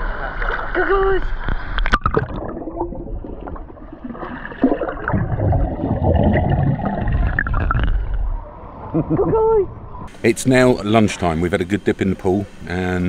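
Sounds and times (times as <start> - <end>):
underwater bubbling and churning: 0.0 - 9.0.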